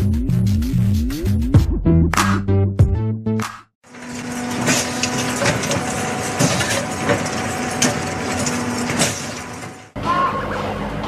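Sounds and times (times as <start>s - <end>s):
bending machine humming: 3.8s - 11.0s
crusher rumbling: 3.9s - 10.0s.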